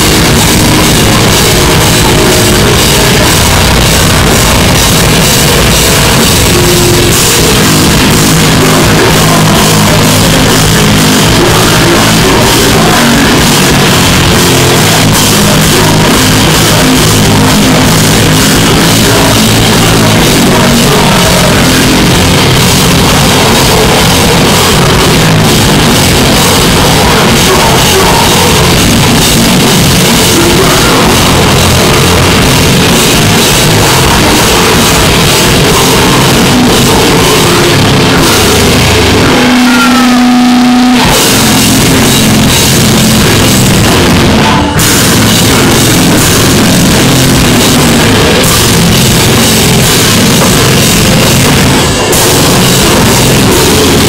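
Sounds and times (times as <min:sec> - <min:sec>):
live metal band playing: 0:00.0 - 0:54.0.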